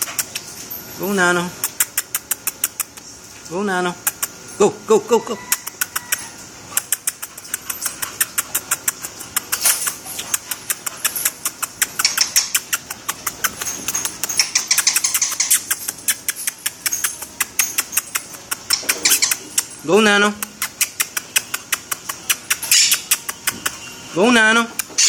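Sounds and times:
chain leash clinking and dragging: 0.0 - 3.5, 4.2 - 25.0
dog claws clicking on hard floor: 6.8 - 19.7, 20.4 - 23.8.

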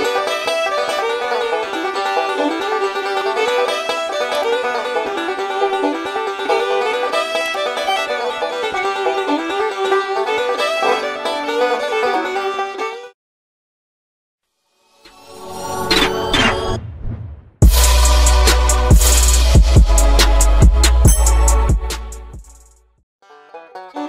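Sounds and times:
bluegrass banjo music: 0.0 - 13.1, 17.7 - 22.3, 23.2 - 24.0.

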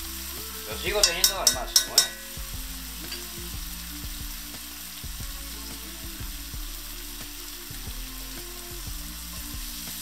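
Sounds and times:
vegetables sizzling in a pan: 0.0 - 10.0
spoon stirring a pan: 0.8 - 2.5.

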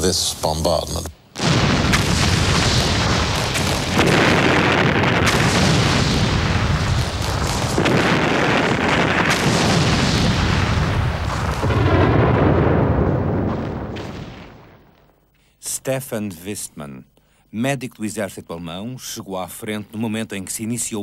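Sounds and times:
artillery booms rumbling: 1.4 - 14.9
heavy gun boom: 1.4 - 14.9.

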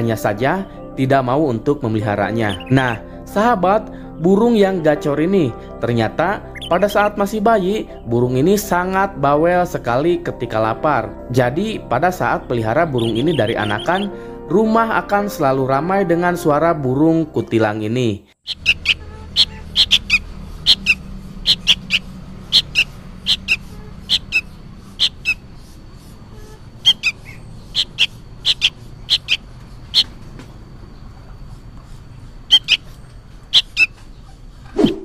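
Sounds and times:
bird chick chirping: 2.4 - 3.0, 6.5 - 6.9, 13.0 - 14.1, 18.4 - 35.0.

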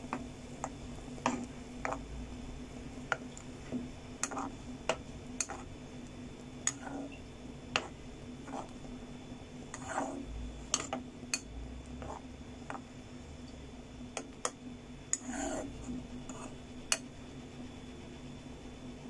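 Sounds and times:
steady low hum: 0.0 - 19.0
metal spoon scraping frying pan: 0.6 - 2.0, 4.2 - 5.7, 6.6 - 8.9, 9.7 - 12.8, 15.1 - 17.0.

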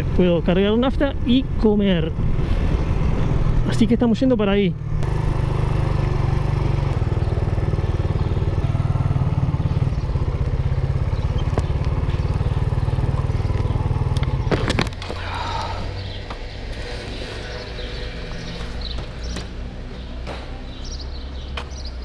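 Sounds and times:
motorcycle engine idling: 4.8 - 14.6.

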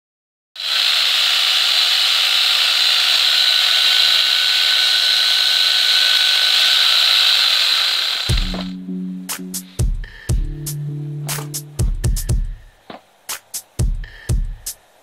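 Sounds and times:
angle grinder motor whine: 0.6 - 8.8.

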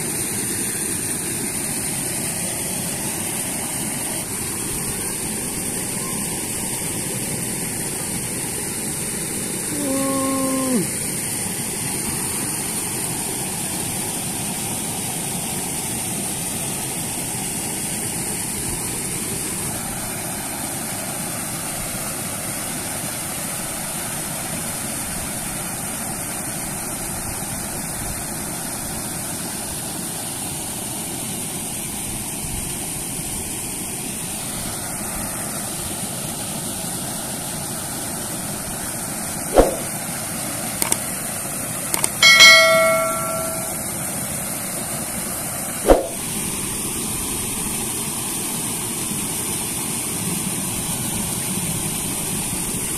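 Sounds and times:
brief sharp sound: 39.5 - 39.9, 42.0 - 43.9, 45.9 - 46.2
short falling tone: 42.2 - 43.9.

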